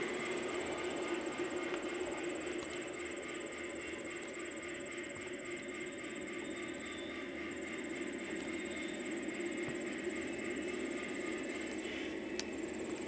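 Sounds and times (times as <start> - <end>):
high insect trill: 0.0 - 13.0
model train rolling on track: 0.0 - 13.0.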